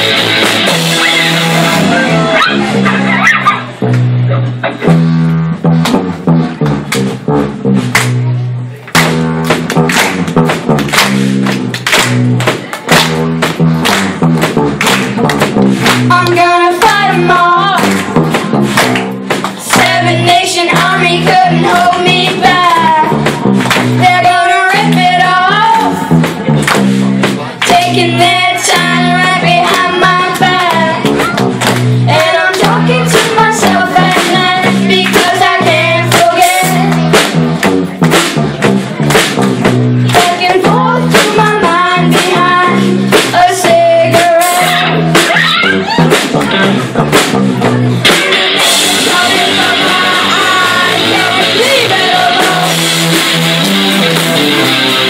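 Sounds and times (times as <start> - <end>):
bass line: 0.0 - 55.0
steady drum beat: 0.0 - 55.0
person singing: 48.6 - 52.9.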